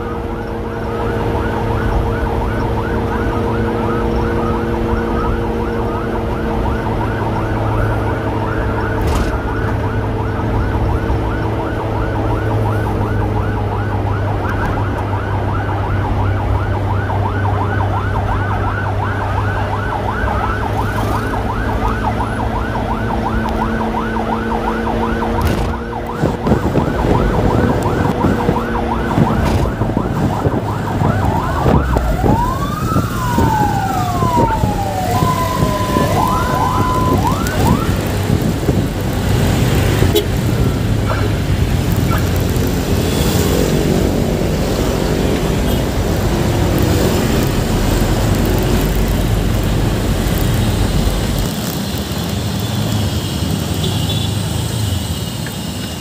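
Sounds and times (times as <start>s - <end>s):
sirens yelping and wailing: 0.0s - 56.0s.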